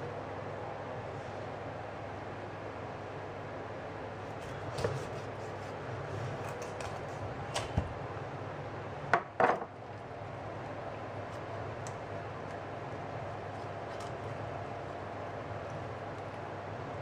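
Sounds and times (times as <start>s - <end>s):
steady low hum: 0.0s - 17.0s
knife cutting through fish: 4.4s - 7.2s.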